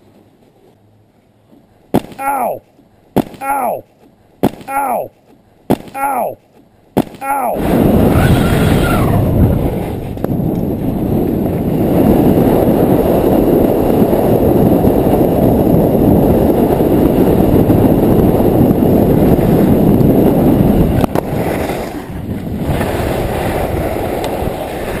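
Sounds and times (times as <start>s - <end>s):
wind buffeting microphone: 6.6s - 25.0s
skis scraping on snow: 20.6s - 25.0s.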